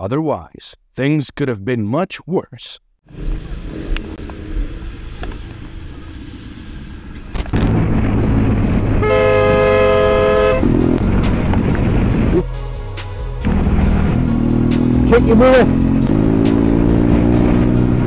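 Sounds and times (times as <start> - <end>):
road noise: 3.0 - 18.0
vehicle horn blaring: 9.0 - 11.0.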